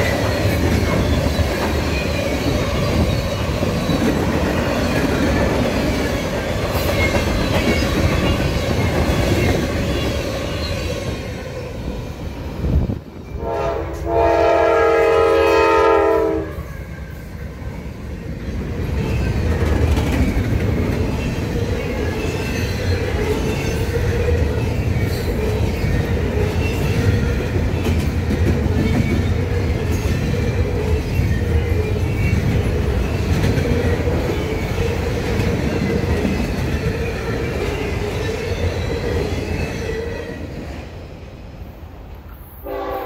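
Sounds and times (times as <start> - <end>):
freight train wheels rumbling and clacking: 0.0 - 43.0
train horn chord: 13.4 - 16.7, 42.6 - 43.0.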